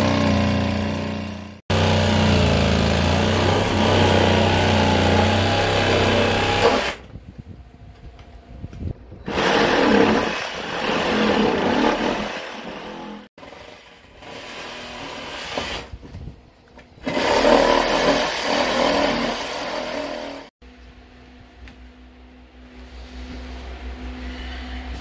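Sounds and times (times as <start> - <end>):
reciprocating saw cutting plywood: 0.0 - 7.1, 9.2 - 16.0, 17.0 - 20.5.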